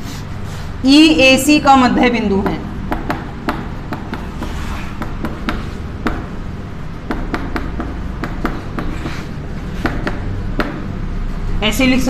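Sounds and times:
steady low hum: 0.0s - 12.0s
chalk tapping on a chalkboard: 2.4s - 6.4s, 7.1s - 10.8s.

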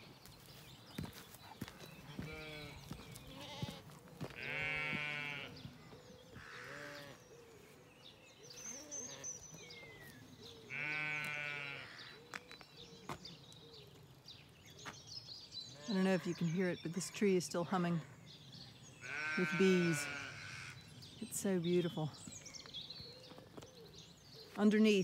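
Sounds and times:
birds chirping faintly: 0.0s - 25.0s
sheep bleating: 2.1s - 5.6s, 6.4s - 7.2s, 10.7s - 12.0s, 19.0s - 20.8s.

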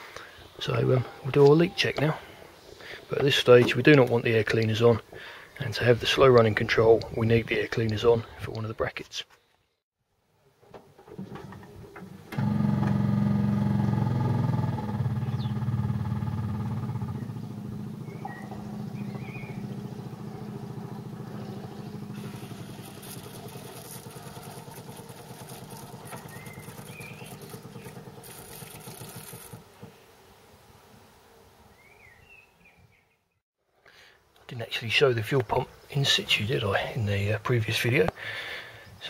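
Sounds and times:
electric fuel pump ticking: 12.3s - 30.0s.

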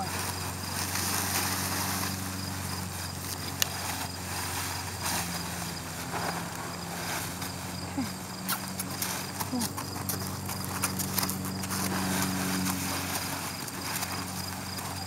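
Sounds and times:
cloth blanket rustling: 0.0s - 8.2s
steady low hum: 0.0s - 15.0s.

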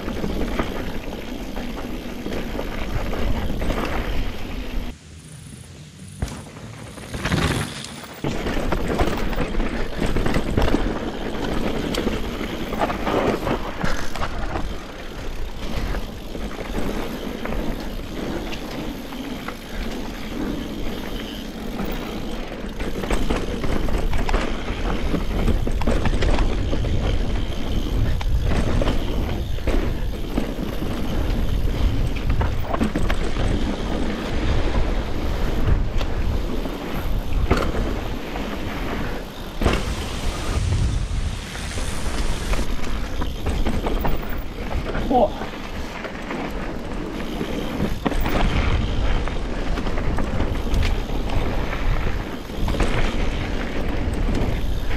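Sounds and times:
bike tyre rush: 0.0s - 54.9s
bike clattering over rocks: 6.3s - 34.4s.

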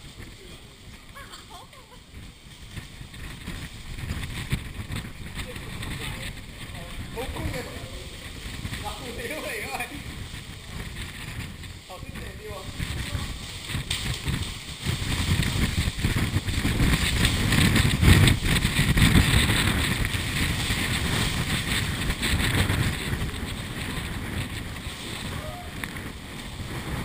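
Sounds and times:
wind buffeting microphone: 0.0s - 27.0s.

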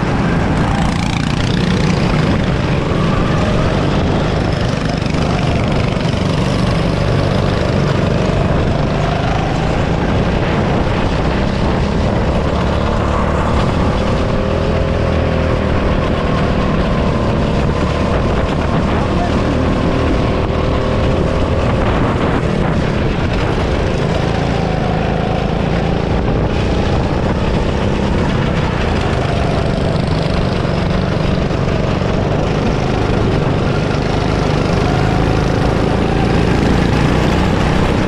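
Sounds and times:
go-kart engine running hard: 0.0s - 38.0s.

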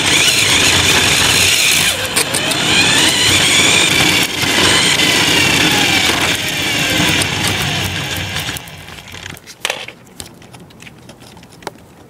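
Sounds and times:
toy truck motor whine: 0.0s - 9.4s
rattling tyre noise: 0.0s - 11.8s.

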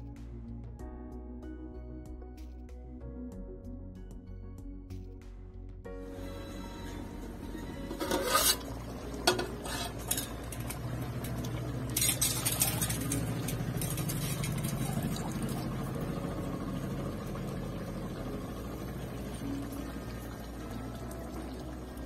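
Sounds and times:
pot boiling rumble: 6.4s - 22.0s
metal lid clattering and scraping: 7.9s - 15.0s.

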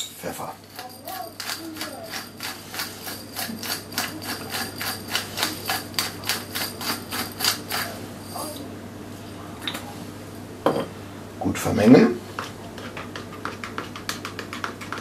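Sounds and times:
pepper mill grinding: 0.6s - 8.6s.

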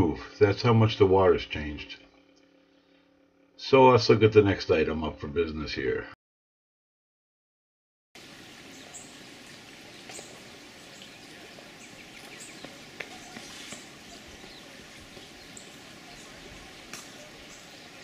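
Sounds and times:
steady background hiss: 8.2s - 18.0s
high bird chirps: 10.1s - 18.0s.

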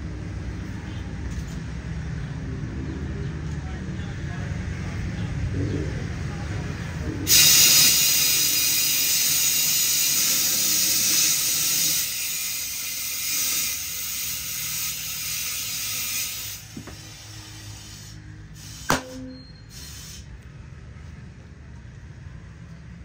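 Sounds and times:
compressed air hissing into tyre: 7.3s - 20.5s.

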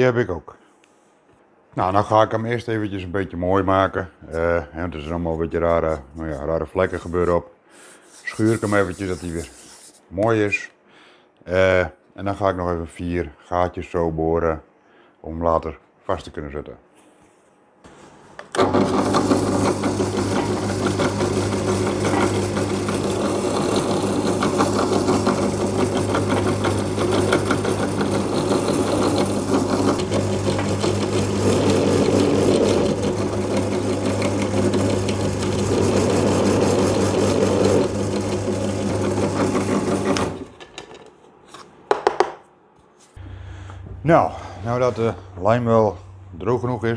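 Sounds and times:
drill press motor humming: 18.4s - 40.5s.

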